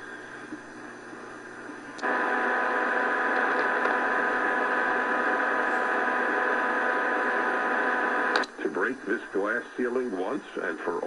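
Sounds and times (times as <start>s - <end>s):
radio static hissing: 0.0s - 11.0s.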